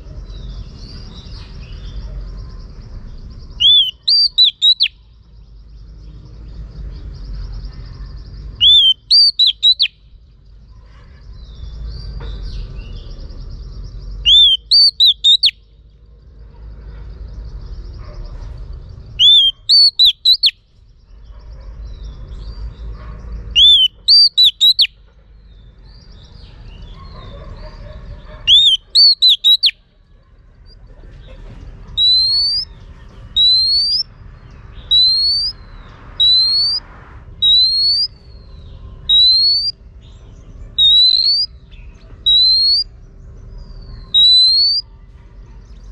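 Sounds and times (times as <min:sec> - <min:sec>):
bird whistling call: 0:03.6 - 0:05.0, 0:08.6 - 0:10.0, 0:14.2 - 0:15.6, 0:19.2 - 0:20.6, 0:23.6 - 0:24.9, 0:28.5 - 0:29.8, 0:32.0 - 0:32.7, 0:33.4 - 0:34.1, 0:34.9 - 0:35.6, 0:36.2 - 0:36.8, 0:37.4 - 0:38.2, 0:39.1 - 0:39.8, 0:40.8 - 0:41.5, 0:42.2 - 0:42.9, 0:44.0 - 0:44.8.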